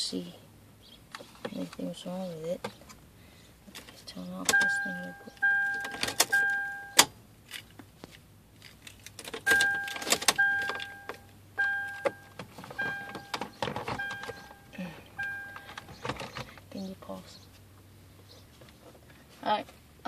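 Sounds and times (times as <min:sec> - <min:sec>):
short electronic beeps: 0:04.5 - 0:07.0, 0:09.5 - 0:16.0.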